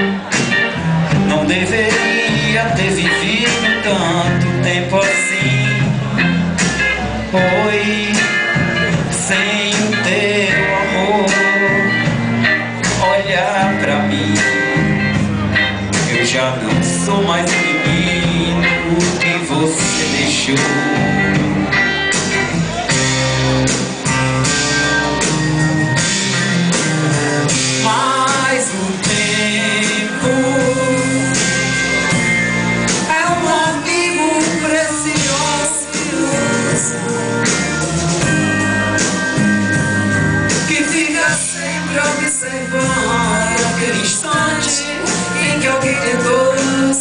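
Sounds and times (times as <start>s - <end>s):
live rock band: 0.0s - 47.0s
person singing: 1.0s - 15.2s, 16.1s - 21.8s, 27.6s - 31.8s, 32.9s - 39.3s, 40.5s - 47.0s.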